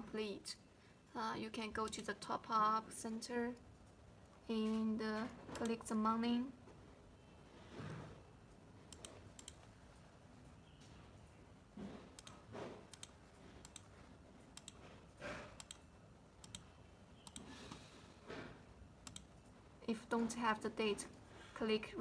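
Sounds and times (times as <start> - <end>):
computer mouse clicking: 5.5 - 5.8, 8.9 - 10.0, 12.1 - 17.5, 19.0 - 19.5.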